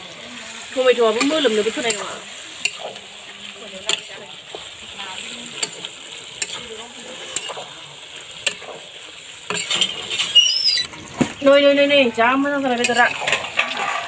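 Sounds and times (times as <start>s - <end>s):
vegetables sizzling in a wok: 0.0s - 14.0s
spatula clinking against pan: 1.2s - 2.9s, 7.4s - 7.6s.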